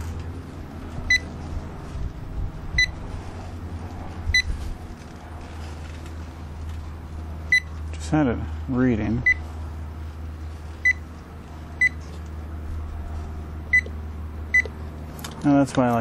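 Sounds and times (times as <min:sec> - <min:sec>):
low steady hum: 0:00.0 - 0:16.0
clamp meter beeping: 0:01.1 - 0:01.3, 0:02.8 - 0:03.0, 0:04.3 - 0:04.5, 0:07.5 - 0:07.7, 0:09.2 - 0:09.4, 0:10.8 - 0:11.0, 0:11.8 - 0:12.0, 0:13.7 - 0:13.9, 0:14.5 - 0:14.7.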